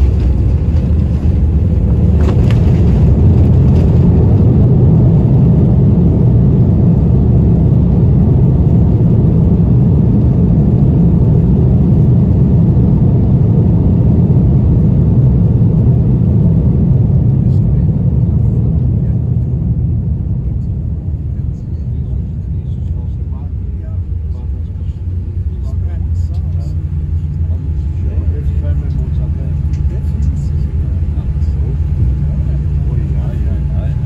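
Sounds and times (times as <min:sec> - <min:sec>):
jet engine reverse thrust roar: 0:00.0 - 0:34.0
landing gear rumbling on runway: 0:00.0 - 0:34.0.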